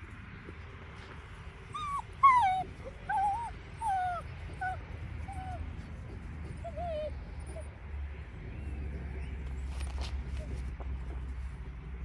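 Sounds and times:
puppies whining and yelping: 1.7s - 10.7s.

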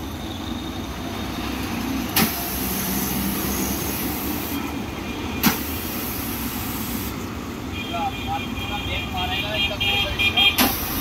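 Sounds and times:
water jet hissing: 5.4s - 7.2s.

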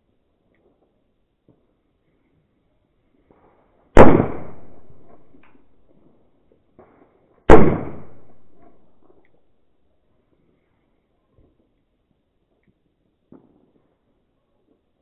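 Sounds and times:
firecracker bangs echoing: 3.3s - 5.6s, 6.8s - 9.2s.

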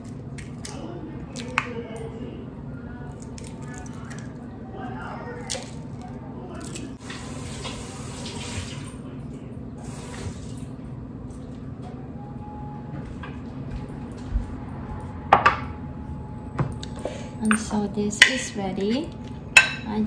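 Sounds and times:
steady low hum: 0.0s - 7.1s, 8.9s - 20.0s
kitchen tap running: 7.0s - 9.0s.

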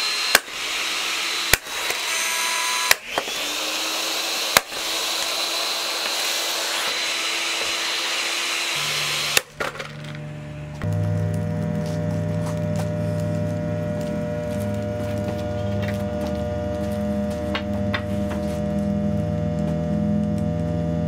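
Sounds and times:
blender motor whirring: 0.0s - 10.2s.

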